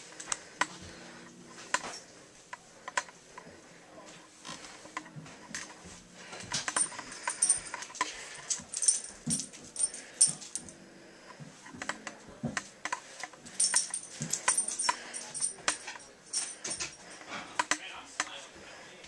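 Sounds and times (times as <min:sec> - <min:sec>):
dog collar tags jingling: 0:06.7 - 0:10.7, 0:13.5 - 0:17.1.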